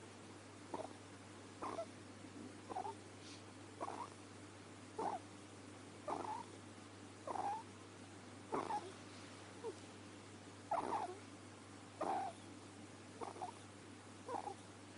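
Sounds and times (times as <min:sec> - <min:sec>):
ferret snoring: 0:00.7 - 0:01.0, 0:01.6 - 0:01.9, 0:02.7 - 0:03.0, 0:03.8 - 0:04.2, 0:05.0 - 0:05.2, 0:06.0 - 0:06.5, 0:07.2 - 0:07.7, 0:08.5 - 0:09.0, 0:10.7 - 0:11.2, 0:12.0 - 0:12.4, 0:13.2 - 0:13.6, 0:14.2 - 0:14.6.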